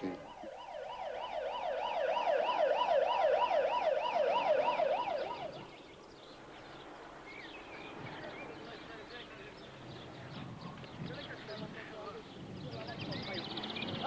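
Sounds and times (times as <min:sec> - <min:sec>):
emergency siren yelping: 0:00.0 - 0:05.8.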